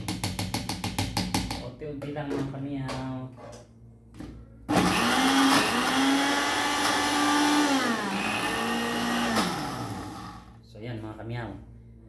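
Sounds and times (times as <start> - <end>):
blender motor running: 4.7 - 10.6.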